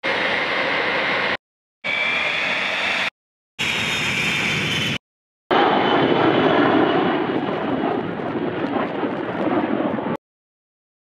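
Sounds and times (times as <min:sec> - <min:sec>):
jet engine whine: 0:00.0 - 0:10.2
jet engines rushing in flight: 0:00.0 - 0:10.2.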